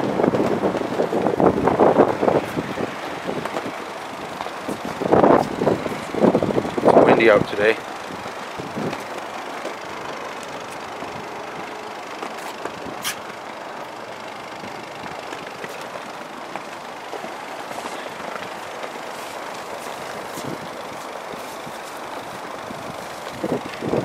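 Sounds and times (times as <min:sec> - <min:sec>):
wind noise on microphone: 0:00.0 - 0:09.2, 0:12.5 - 0:13.4, 0:19.9 - 0:24.0
car engine idling: 0:00.0 - 0:24.0.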